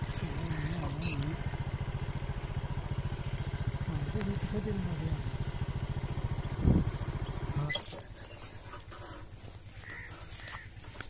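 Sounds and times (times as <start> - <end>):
motorcycle engine idling: 0.0 - 11.0
short bird calls: 9.8 - 10.9.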